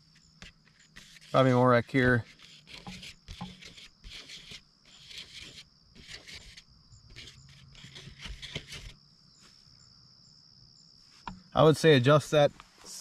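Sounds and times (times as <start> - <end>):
soft rustling and scuffing: 8.4 - 9.8, 12.4 - 13.0.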